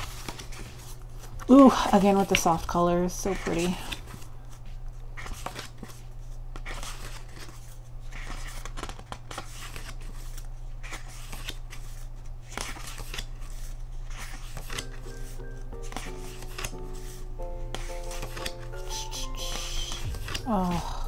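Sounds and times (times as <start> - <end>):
photo book pages turning: 0.0 - 21.0
background music: 14.8 - 21.0.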